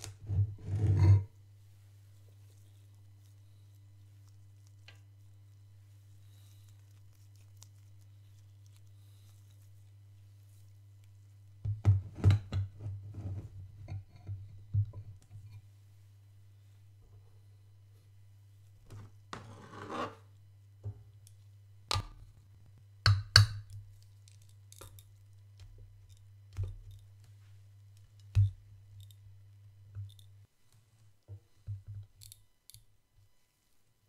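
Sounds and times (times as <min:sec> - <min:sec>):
faint low hum: 0:00.0 - 0:34.0
short scrape: 0:19.4 - 0:20.2.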